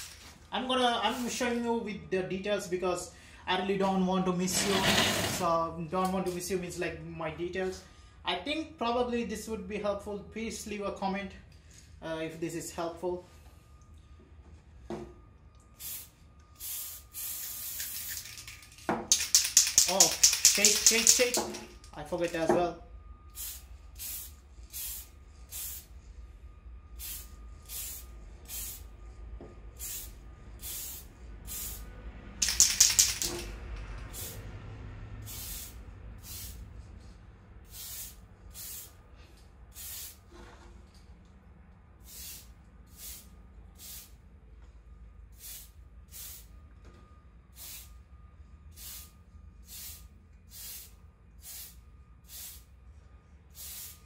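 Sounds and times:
aerosol spray can hissing: 15.8 - 21.6, 23.4 - 25.9, 27.0 - 28.8, 29.8 - 31.8, 32.4 - 33.5, 34.1 - 34.4, 35.3 - 36.6, 37.7 - 38.9, 48.8 - 49.1, 49.7 - 52.6, 53.6 - 54.0.

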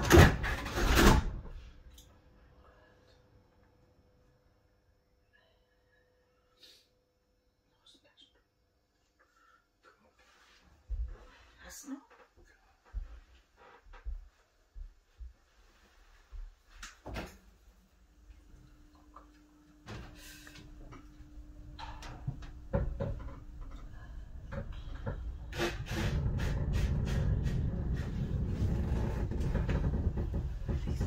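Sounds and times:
steady low hum: 17.5 - 31.0
funicular knocks and clunks: 21.7 - 31.0
low rumble of moving car: 22.2 - 31.0.

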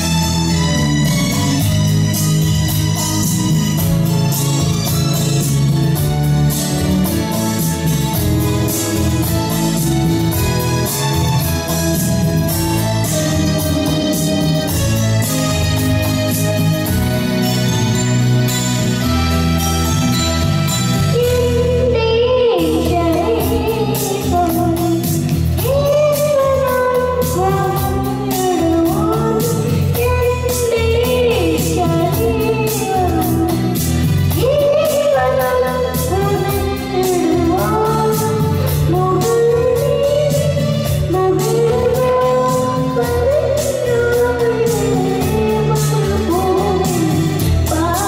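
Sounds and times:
instrumental music with steady beat: 0.0 - 48.0
boy singing into a microphone: 21.1 - 48.0.

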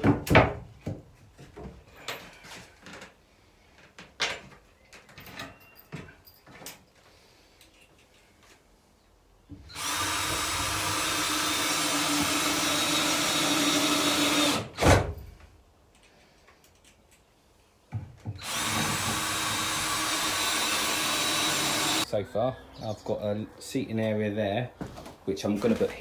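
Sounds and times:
cordless drill driving screws: 9.7 - 14.8, 18.4 - 22.0.

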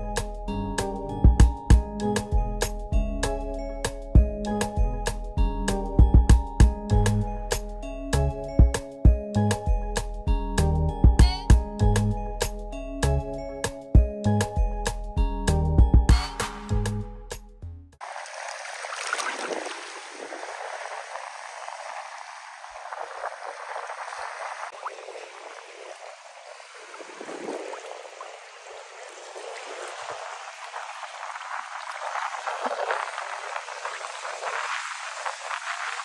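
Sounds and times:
water washing and gurgling: 18.0 - 36.0.

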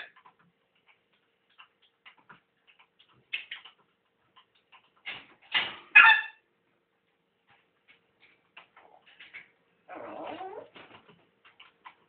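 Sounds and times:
parrot clicking: 0.0 - 5.2
parrot calls: 5.9 - 6.4.

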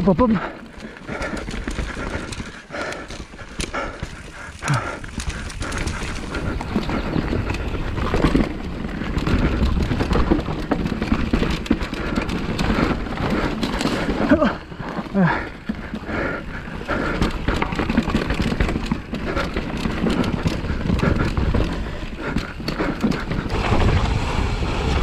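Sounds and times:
bike knocking and rattling: 0.0 - 25.0
bike tyres rolling over dirt: 0.0 - 25.0.

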